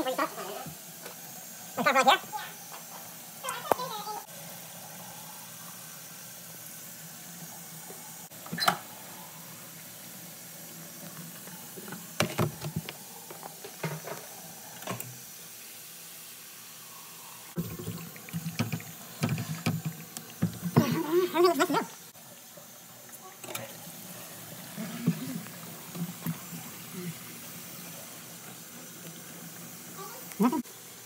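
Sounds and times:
tap water running into sink: 11.0 - 15.2, 17.6 - 30.4.

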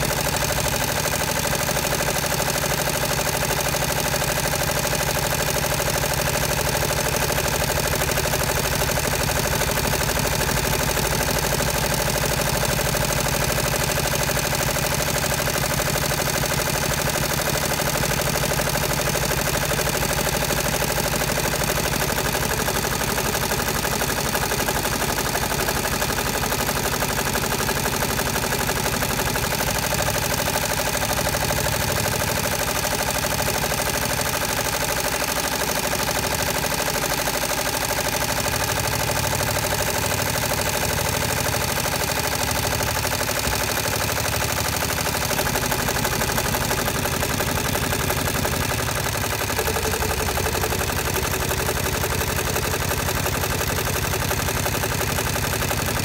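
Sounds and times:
embroidery machine stitching: 0.0 - 56.0.

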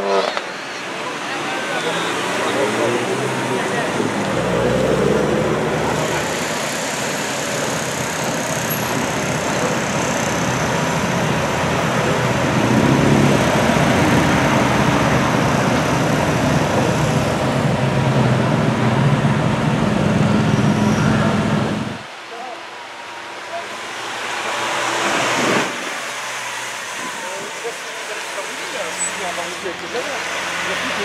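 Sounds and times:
car engine driving off: 0.0 - 22.1.

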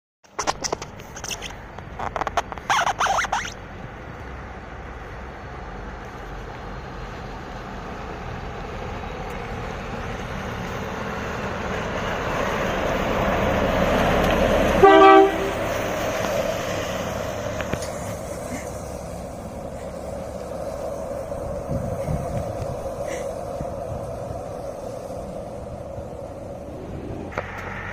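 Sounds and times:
dump truck passing: 0.3 - 27.9
air horn blast: 14.8 - 15.7.

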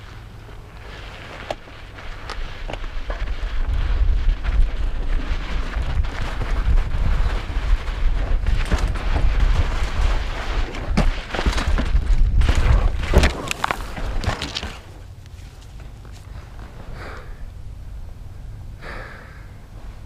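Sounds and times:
wind noise on camera: 0.0 - 19.0
bike tyres rumbling on dirt: 0.0 - 20.0
bike crashing with knocks: 4.4 - 15.0.

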